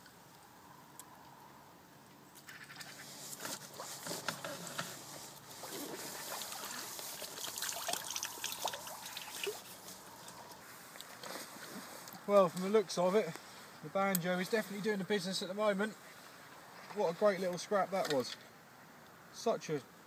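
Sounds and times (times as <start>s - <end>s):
water sloshing: 5.5s - 12.0s
fish splashing at water surface: 5.6s - 9.8s.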